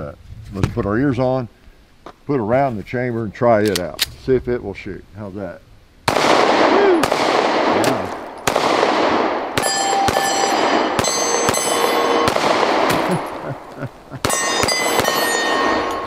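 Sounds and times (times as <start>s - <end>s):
pistol shots: 6.1s - 13.5s, 14.2s - 16.0s
steel targets ringing: 9.6s - 13.4s, 14.2s - 16.0s.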